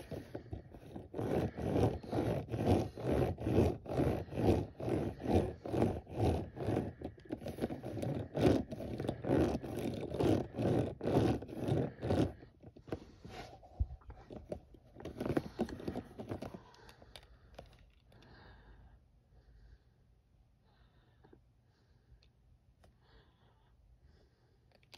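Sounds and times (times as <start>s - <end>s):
toy tires scraping on hard surface: 0.0s - 18.2s
handling noises and light clicks: 5.7s - 18.3s, 24.6s - 24.9s.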